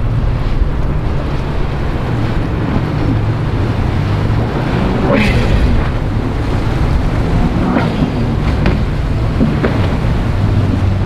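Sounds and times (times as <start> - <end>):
boat engine drone: 0.0 - 11.0
rush of boat wake: 0.0 - 11.0
wind buffeting microphone: 0.0 - 11.0.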